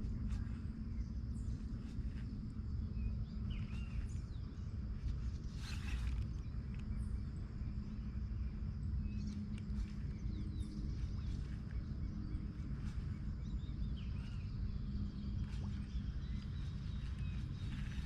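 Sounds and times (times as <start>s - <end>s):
low rumble and hum: 0.0s - 18.0s
birds chirping: 9.0s - 18.0s.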